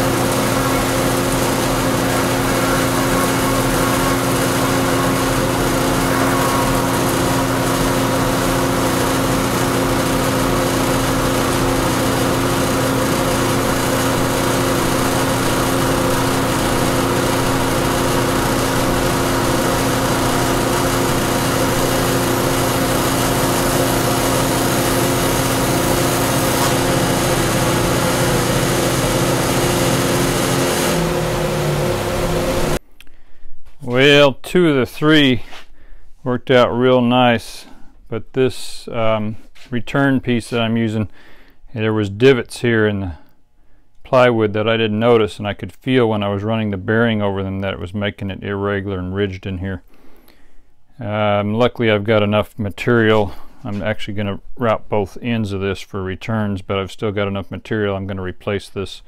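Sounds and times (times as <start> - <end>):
router whining: 0.0 - 32.8.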